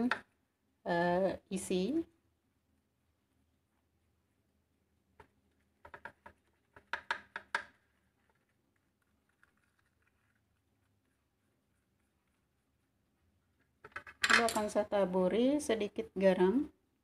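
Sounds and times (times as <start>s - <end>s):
brush tapping on ceramic plate: 5.2s - 7.8s.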